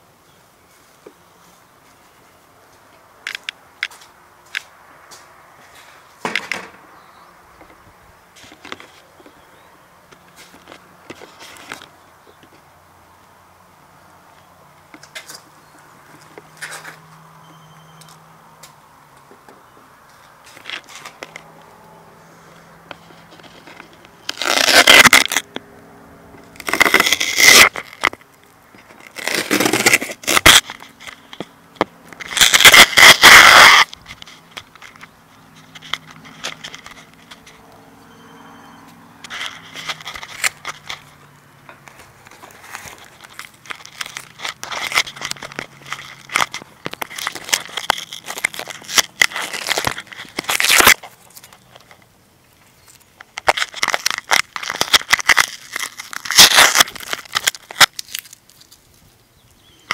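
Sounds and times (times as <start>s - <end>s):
loud crackling bursts: 24.2s - 25.5s, 26.5s - 28.2s, 32.1s - 37.3s, 42.3s - 51.5s, 53.3s - 58.6s.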